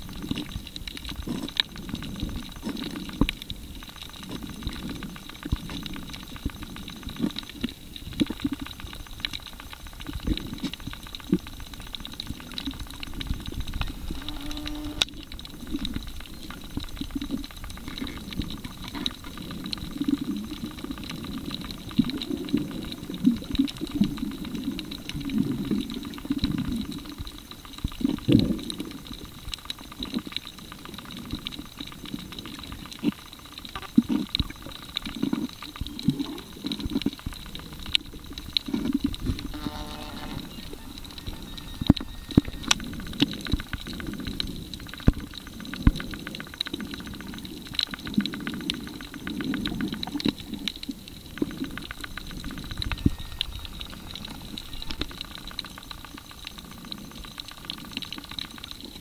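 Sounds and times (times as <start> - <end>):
muffled underwater water surges: 0.0 - 59.0
faint steady high tone: 39.5 - 42.8, 52.8 - 55.2.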